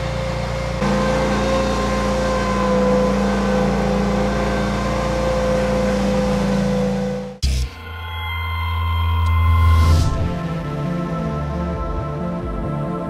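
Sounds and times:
vehicle engine running steadily: 0.0 - 7.4.

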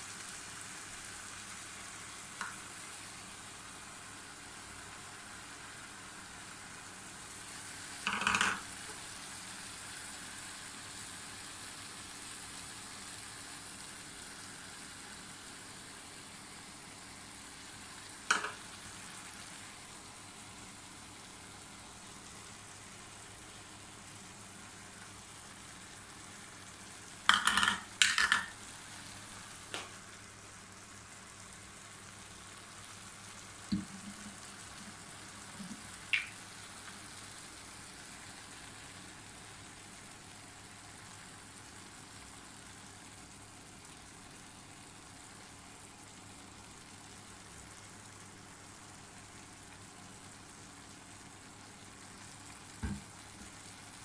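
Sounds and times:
syrup sizzling in pan: 0.0 - 54.0
spoon and cup tapping pan: 8.1 - 8.6, 18.3 - 18.6, 27.3 - 28.6.

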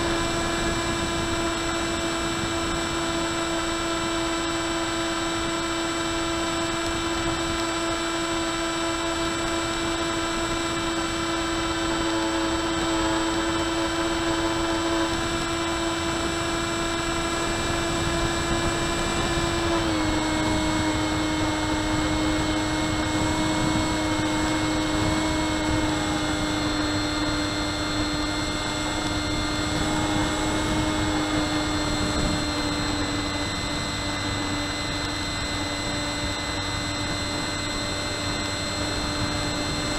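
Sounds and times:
electric motor and propeller whining: 0.0 - 39.9.

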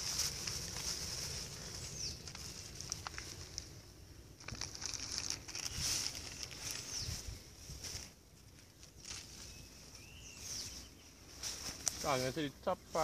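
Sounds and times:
high-pitched insect chorus: 0.0 - 8.2
plastic wrap crinkling: 4.4 - 7.0.

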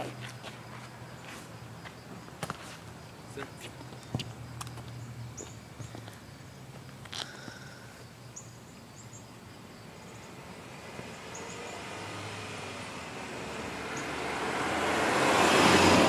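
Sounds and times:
car driving past: 10.1 - 16.0.

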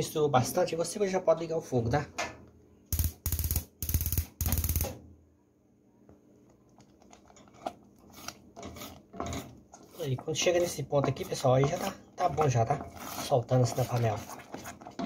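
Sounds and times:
wooden spoon scraping a pot: 7.1 - 15.0.

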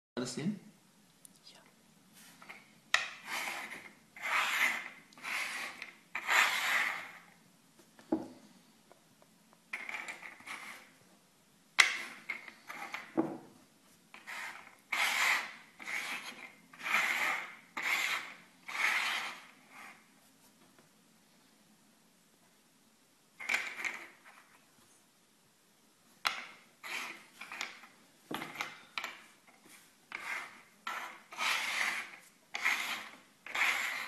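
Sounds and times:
shells scraping on wooden table: 2.3 - 7.4, 9.7 - 11.0, 11.8 - 13.5, 14.1 - 20.1, 23.4 - 24.6, 26.2 - 34.0.

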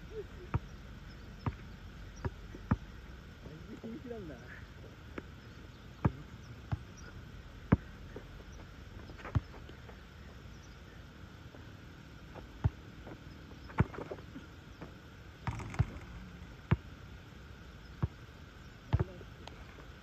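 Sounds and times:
basketball bouncing on asphalt: 1.4 - 3.0, 6.0 - 10.0, 12.4 - 14.2, 14.8 - 16.9, 17.9 - 18.2, 18.9 - 19.2.

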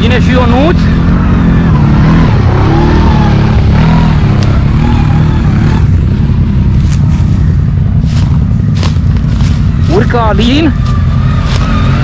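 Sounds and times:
atv engines running: 0.0 - 12.0.

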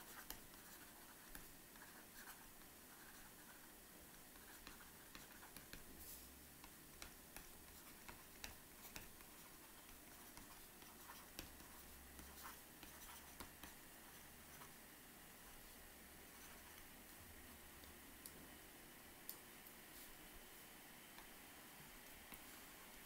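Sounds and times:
room hiss: 0.0 - 23.0.

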